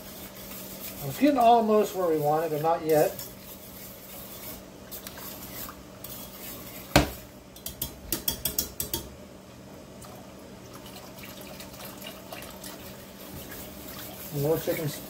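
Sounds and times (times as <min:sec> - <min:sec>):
whisk scraping metal skillet: 0:00.0 - 0:09.0, 0:13.2 - 0:15.0.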